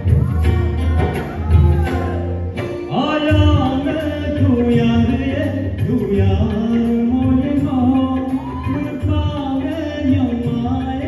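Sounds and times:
musical accompaniment with low beat: 0:00.0 - 0:11.0
man singing into microphone: 0:02.8 - 0:11.0.

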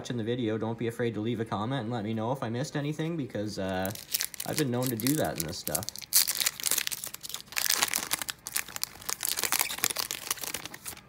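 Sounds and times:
foil wrapper tearing and crinkling: 0:03.8 - 0:11.0.

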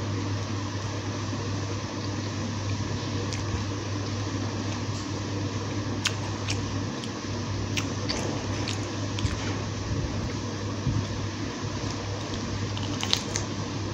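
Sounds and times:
steady low hum: 0:00.0 - 0:13.9
chewing crisp pastry: 0:02.0 - 0:09.8, 0:11.5 - 0:13.9
crisp pastry crunches: 0:05.9 - 0:09.6, 0:11.7 - 0:13.9.

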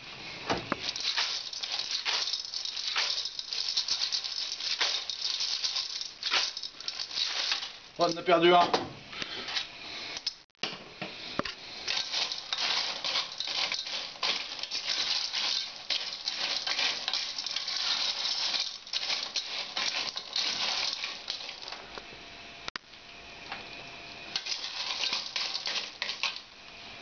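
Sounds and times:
shells clattering in metal pot: 0:00.8 - 0:08.6, 0:11.8 - 0:21.8, 0:24.3 - 0:26.5.

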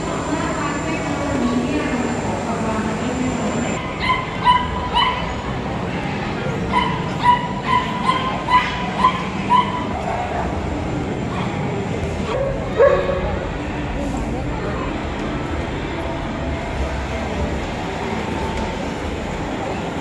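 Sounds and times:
murmur of crowd: 0:00.0 - 0:20.0
dog barking in high-pitched yips: 0:03.9 - 0:05.4, 0:06.7 - 0:10.0, 0:12.3 - 0:13.2.

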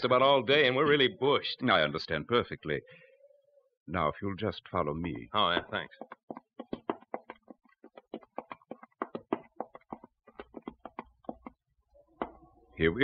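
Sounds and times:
footsteps of several people: 0:05.4 - 0:11.6.

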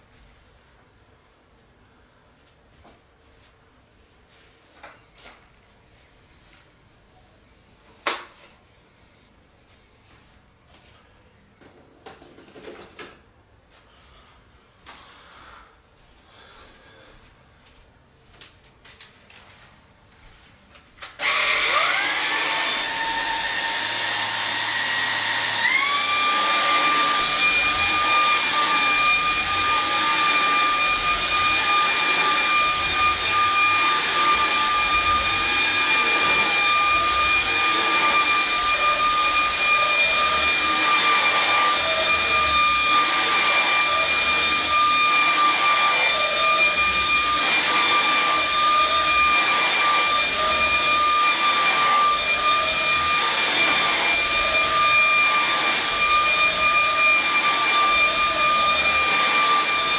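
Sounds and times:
vacuum cleaner motor whine: 0:21.2 - 0:59.9.

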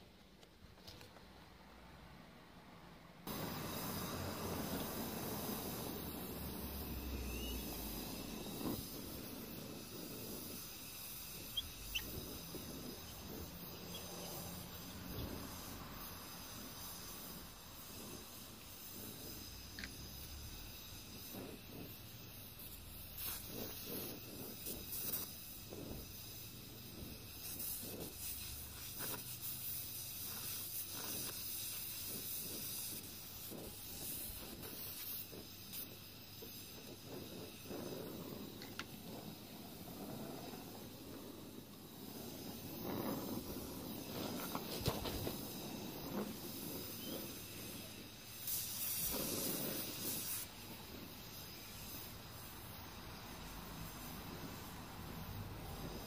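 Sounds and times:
torch flame hissing: 0:03.2 - 0:56.0.

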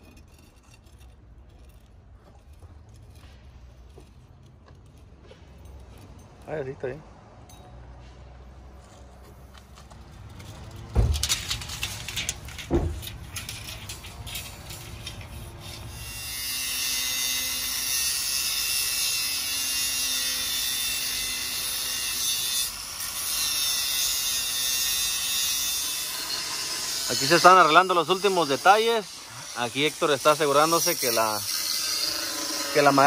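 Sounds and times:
angle grinder cutting steel: 0:10.4 - 0:33.0.

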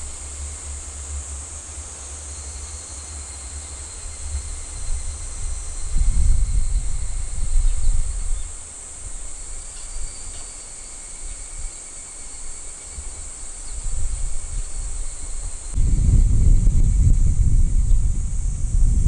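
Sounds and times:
insects chorus: 0:00.0 - 0:19.0
wind rumbling on microphone: 0:03.8 - 0:11.8, 0:12.4 - 0:19.0.

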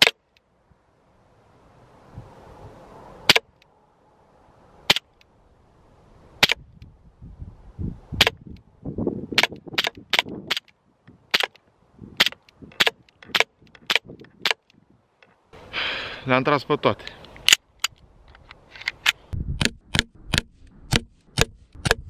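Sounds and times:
airsoft pistol shots: 0:09.3 - 0:10.6.

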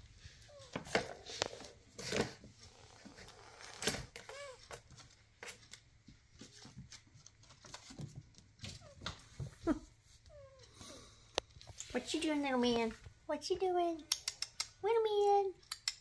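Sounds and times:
paws patting hardwood floor: 0:04.2 - 0:10.4.

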